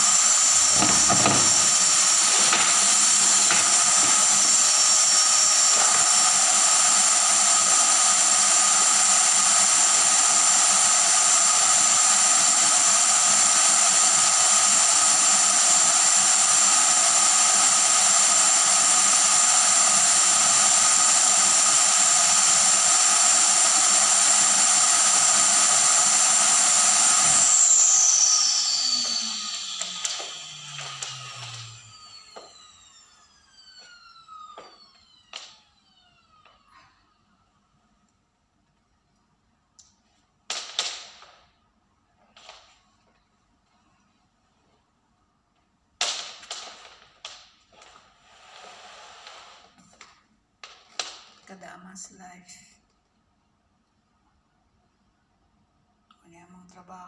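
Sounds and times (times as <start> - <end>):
vacuum cleaner running: 0.0 - 37.6, 46.1 - 50.2
vacuum motor spinning down: 0.0 - 37.6.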